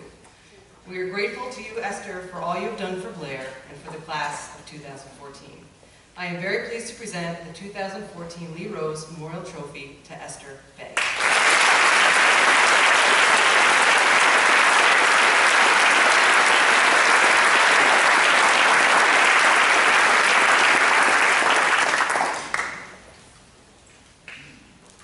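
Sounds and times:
audience applauding: 0:11.0 - 0:23.0.

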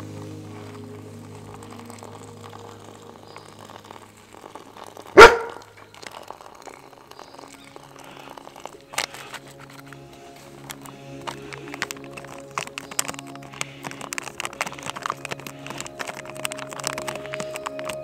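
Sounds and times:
faint background music: 0:00.0 - 0:18.0
dog barking: 0:05.2 - 0:05.6.

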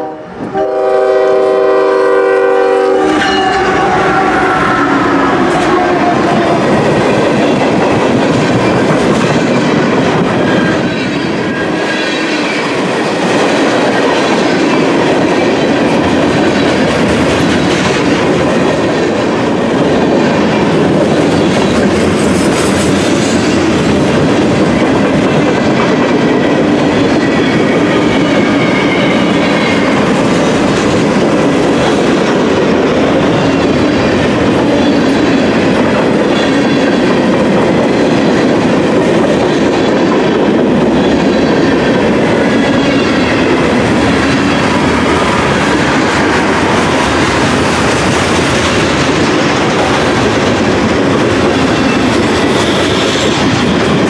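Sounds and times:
freight train rumbling past: 0:00.0 - 0:54.0.

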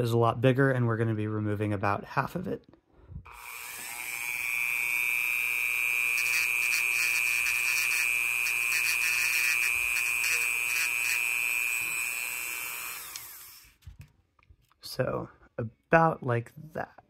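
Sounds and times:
rotary tool whining: 0:03.3 - 0:13.8.

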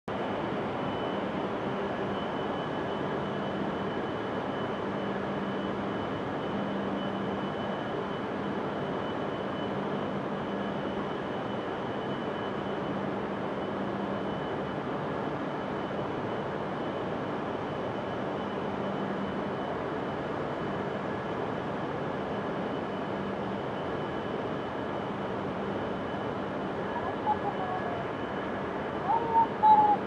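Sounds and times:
thin high whine: 0:22.3 - 0:30.0.

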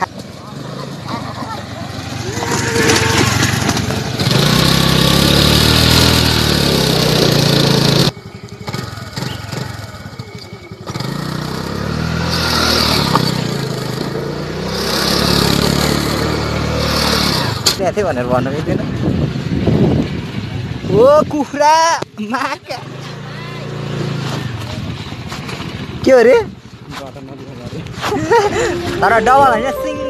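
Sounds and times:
tyre skidding on loose dirt: 0:00.0 - 0:17.8, 0:22.9 - 0:29.1
scooter engine revving: 0:00.0 - 0:18.4, 0:27.9 - 0:30.0.

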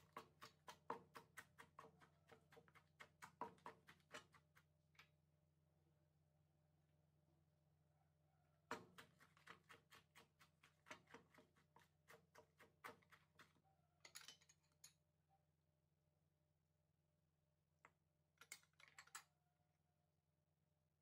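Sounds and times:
wooden pestle pounding in mortar: 0:00.0 - 0:04.6, 0:08.7 - 0:13.5.

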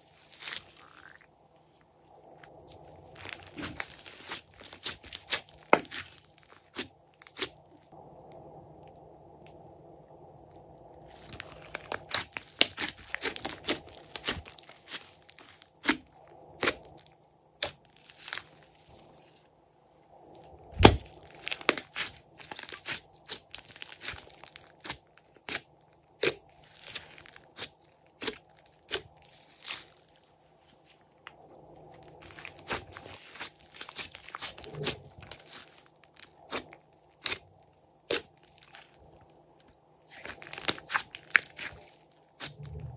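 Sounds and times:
hands squishing slime: 0:00.0 - 0:01.2, 0:02.7 - 0:07.6, 0:11.1 - 0:17.0, 0:20.8 - 0:25.6, 0:26.2 - 0:30.0, 0:32.0 - 0:39.1, 0:40.1 - 0:42.9
slime crackling and popping: 0:00.0 - 0:01.2, 0:02.5 - 0:09.6, 0:11.1 - 0:18.9, 0:20.7 - 0:30.2, 0:31.9 - 0:39.2, 0:40.0 - 0:42.9.

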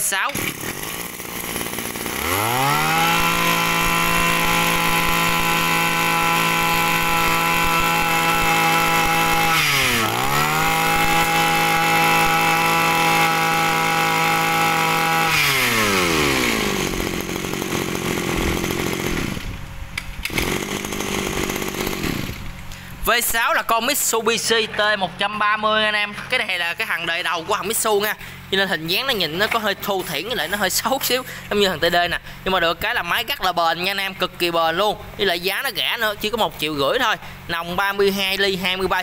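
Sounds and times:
brush cutter engine revving: 0:00.0 - 0:22.9.

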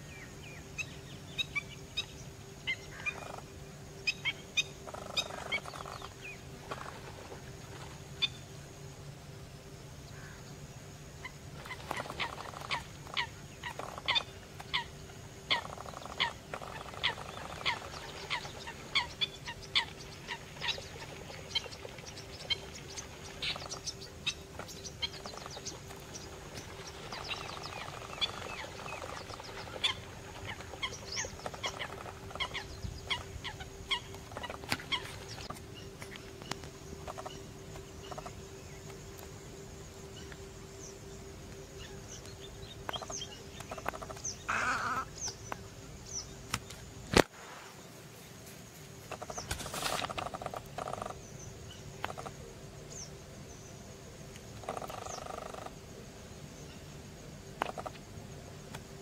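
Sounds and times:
faint steady hum: 0:00.0 - 0:59.0
plovers whistling calls: 0:04.0 - 0:06.9, 0:15.5 - 0:38.5.

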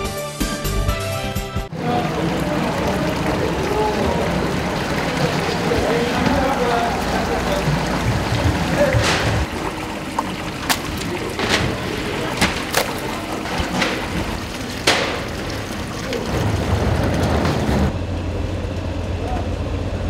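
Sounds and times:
market background noise: 0:01.7 - 0:20.0
plastic crates knocking: 0:05.1 - 0:09.7.

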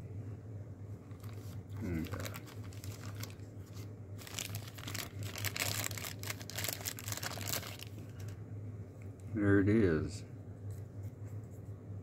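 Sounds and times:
plastic bag crinkling: 0:01.1 - 0:08.4.

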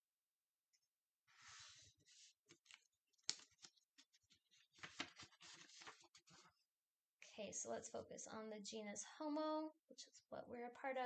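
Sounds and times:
paper rustling: 0:01.3 - 0:06.6.

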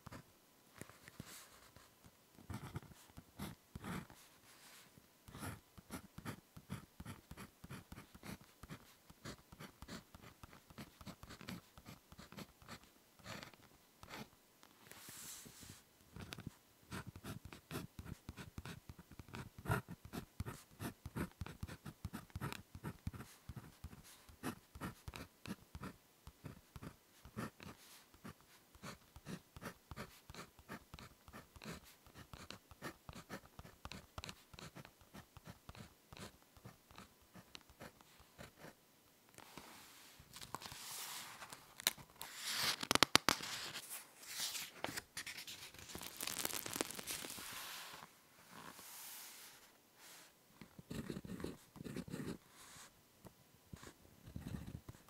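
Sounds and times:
pen writing on paper: 0:02.5 - 0:04.1, 0:05.3 - 0:14.3, 0:16.2 - 0:38.8, 0:50.9 - 0:52.4
paper rustling and crackling: 0:40.3 - 0:48.0.

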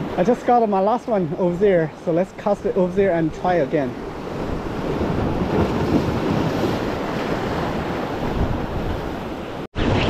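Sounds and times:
ocean surf breaking on boulders: 0:00.0 - 0:10.0
wind buffeting microphone: 0:03.9 - 0:10.0.

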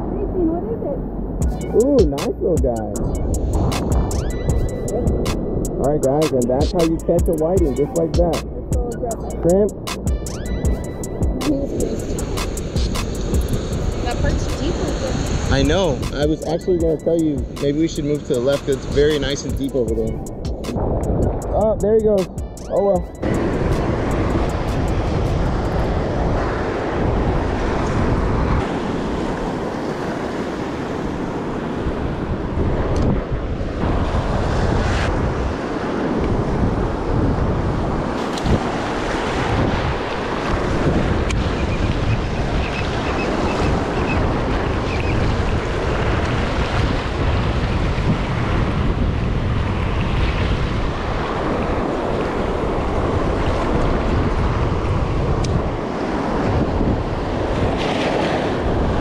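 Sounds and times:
wind buffeting microphone: 0:00.0 - 0:22.5, 0:23.1 - 0:59.0
small waves washing onto sand: 0:11.5 - 0:16.6, 0:23.2 - 0:59.0.

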